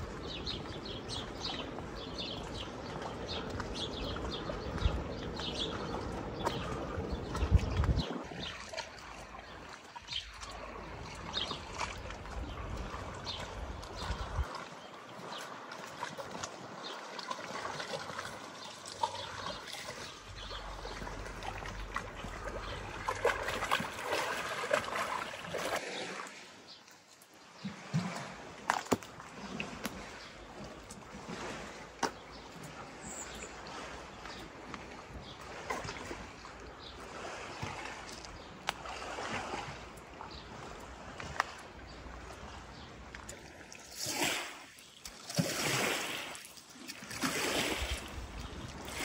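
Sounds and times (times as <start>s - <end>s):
water lapping against stone wall: 0.0s - 49.0s
small birds chirping: 0.2s - 15.5s, 18.6s - 23.7s, 32.1s - 34.6s.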